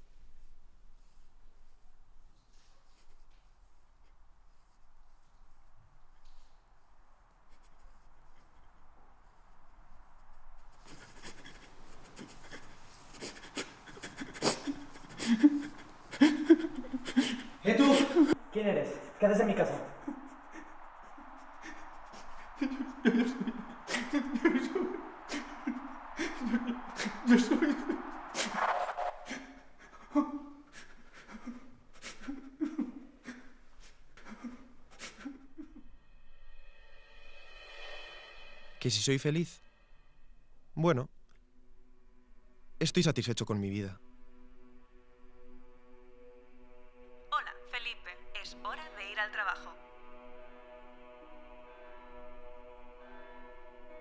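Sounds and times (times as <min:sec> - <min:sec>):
man crying quietly: 0:10.7 - 0:19.2, 0:19.8 - 0:28.4, 0:29.3 - 0:33.6.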